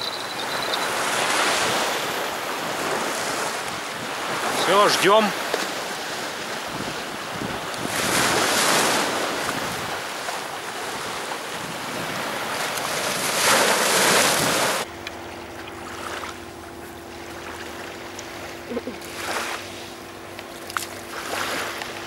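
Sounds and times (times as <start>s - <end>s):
sea waves breaking on beach: 0.0s - 14.9s, 15.8s - 22.0s
wind on microphone: 5.8s - 14.8s.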